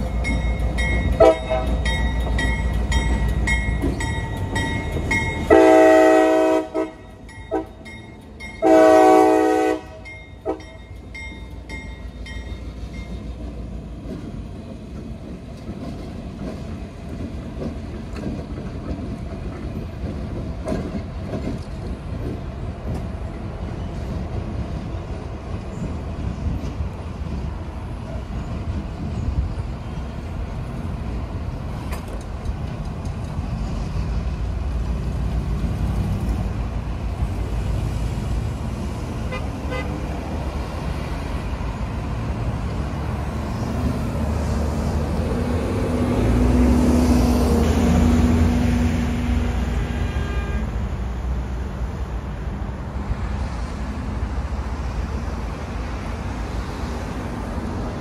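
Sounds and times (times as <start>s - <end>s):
traffic rumble: 0.0s - 58.0s.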